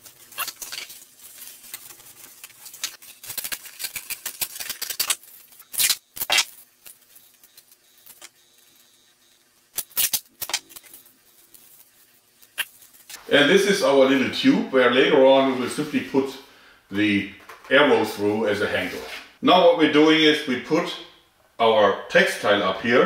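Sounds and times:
cardboard crackling as folded: 0:00.0 - 0:05.7
duct tape ripping off roll: 0:00.0 - 0:08.4, 0:09.7 - 0:13.2.

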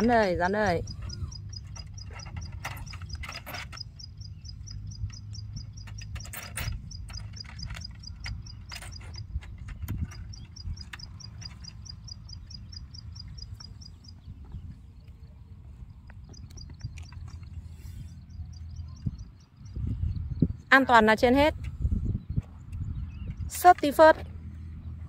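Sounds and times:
small animal chirping: 0:00.6 - 0:14.2.

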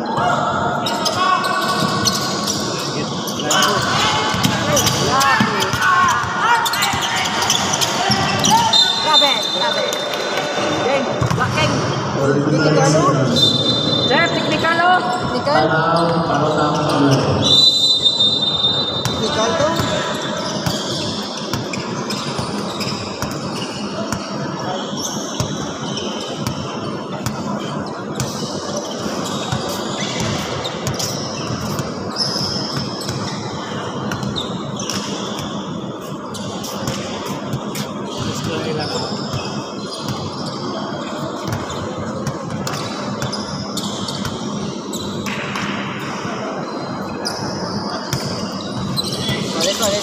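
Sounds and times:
voices chattering: 0:00.0 - 0:17.6
basketball bouncing on court floor: 0:04.3 - 0:08.7, 0:11.2 - 0:11.7, 0:41.4 - 0:44.6.

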